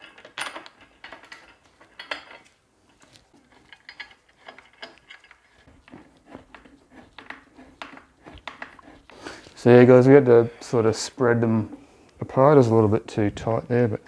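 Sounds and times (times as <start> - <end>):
metal fasteners clicking: 0.0 - 5.7.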